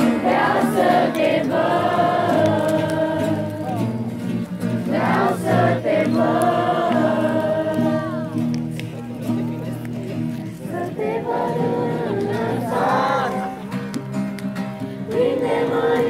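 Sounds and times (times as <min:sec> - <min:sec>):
group singing worship song: 0:00.0 - 0:03.9, 0:04.8 - 0:08.4, 0:10.7 - 0:13.7, 0:15.0 - 0:16.0
acoustic guitars: 0:00.0 - 0:16.0.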